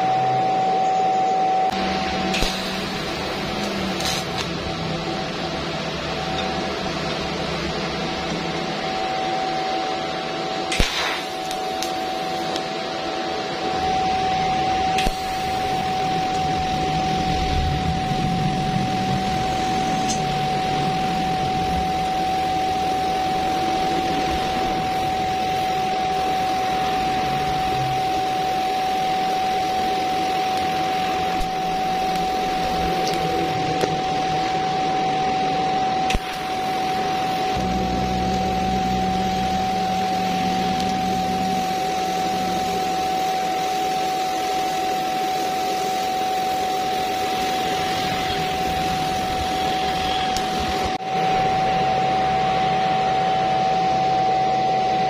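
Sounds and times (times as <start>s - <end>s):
welding arc hissing: 1.7s - 8.8s, 10.7s - 12.7s, 14.1s - 34.6s, 36.0s - 51.6s
sharp crack: 10.7s - 11.9s.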